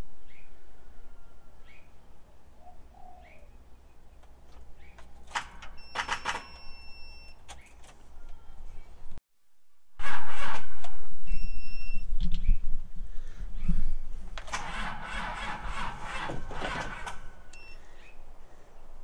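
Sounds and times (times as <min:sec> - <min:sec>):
faint bird chirps: 0:00.2 - 0:04.0, 0:06.8 - 0:09.1
high beep tone: 0:11.2 - 0:12.1
clicking and rattling: 0:14.3 - 0:17.6.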